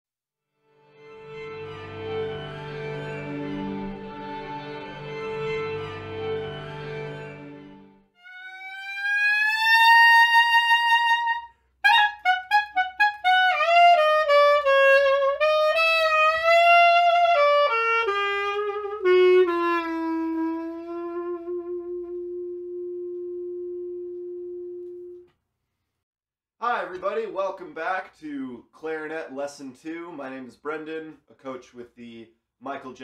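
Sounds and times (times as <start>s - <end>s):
solo clarinet melody: 1.2s - 25.4s.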